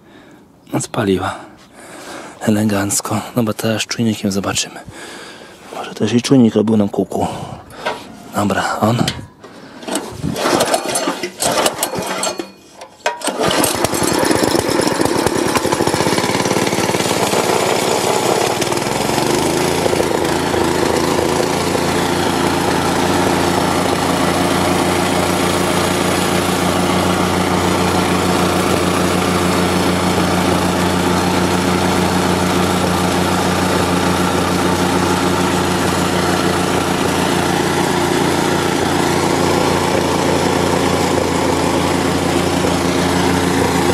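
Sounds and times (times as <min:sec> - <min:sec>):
small engine starting and running: 0:09.8 - 0:43.9.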